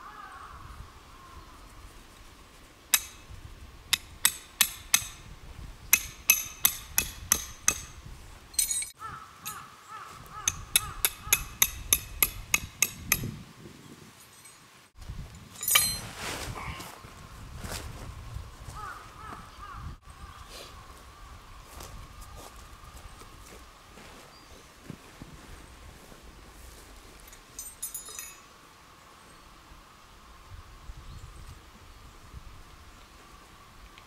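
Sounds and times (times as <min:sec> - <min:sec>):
crow cawing: 0:00.0 - 0:01.4, 0:09.0 - 0:11.4, 0:18.8 - 0:20.4
hammer striking metal tent stakes: 0:02.9 - 0:05.3, 0:05.9 - 0:08.0, 0:10.4 - 0:13.4, 0:15.6 - 0:16.0.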